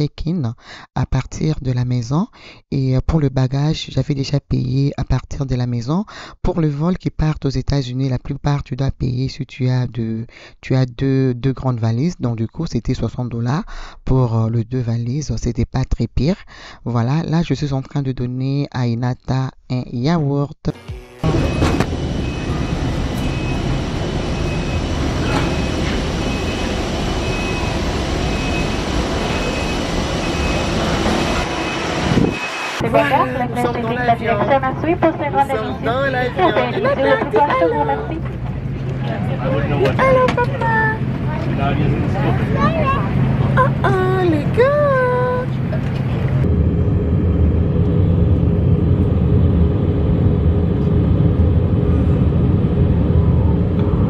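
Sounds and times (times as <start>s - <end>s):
jet engine and airflow rumble: 21.2s - 54.0s.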